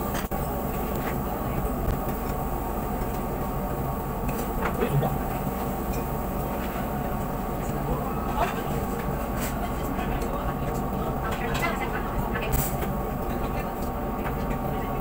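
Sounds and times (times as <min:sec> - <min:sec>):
ventilation drone: 0:00.0 - 0:15.0
background voices: 0:04.4 - 0:15.0.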